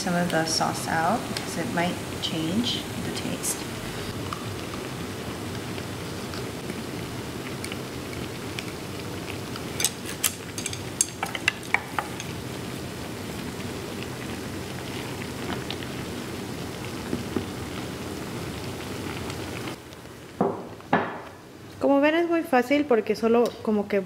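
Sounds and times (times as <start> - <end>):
broth boiling with bubbling hiss: 0.0 - 24.0.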